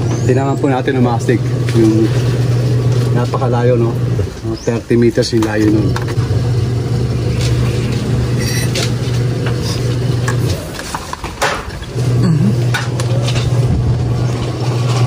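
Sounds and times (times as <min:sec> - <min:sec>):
low engine-like hum: 0:00.0 - 0:10.7.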